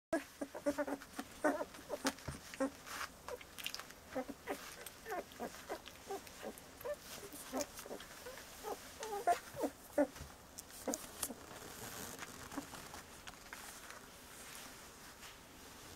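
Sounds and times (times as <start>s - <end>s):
puppies squeaking and whimpering: 0.2s - 10.2s.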